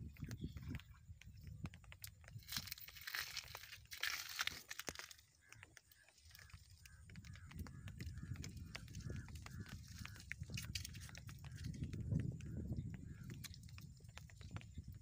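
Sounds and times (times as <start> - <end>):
fish handling clicks and crunches: 0.1 - 15.0
crinkling rustle: 2.2 - 7.0.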